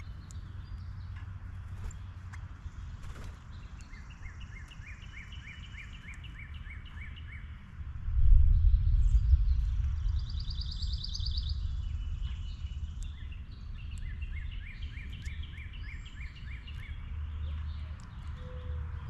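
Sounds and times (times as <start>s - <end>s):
songbirds singing: 0.0s - 19.0s
low rumble: 7.7s - 14.3s.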